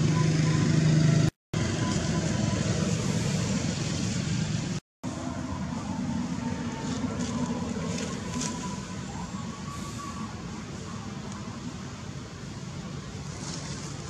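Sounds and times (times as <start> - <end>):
rumbling outdoor background noise: 0.0 - 14.0.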